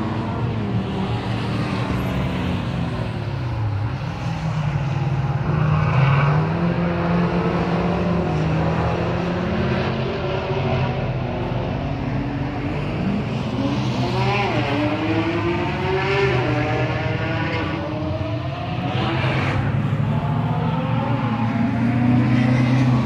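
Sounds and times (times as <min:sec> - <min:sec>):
sports car engines racing: 0:00.0 - 0:23.0.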